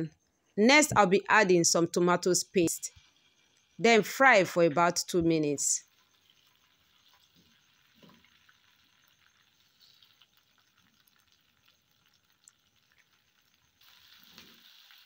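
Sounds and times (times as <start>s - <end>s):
paste sizzling in oil: 5.9s - 15.0s.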